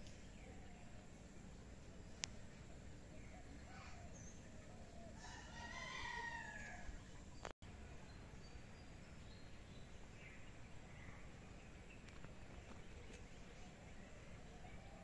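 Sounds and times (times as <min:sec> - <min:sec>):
low steady hum: 0:00.0 - 0:15.0
rooster crowing: 0:05.1 - 0:07.0.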